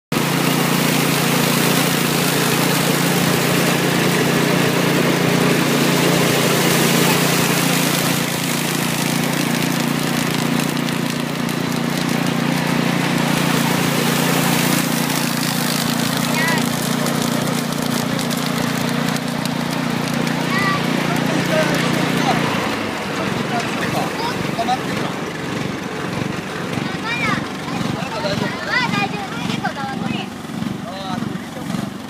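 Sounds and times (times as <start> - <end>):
threshing machine humming: 0.1 - 32.0
rattling hiss of stalks and grain: 0.6 - 24.3.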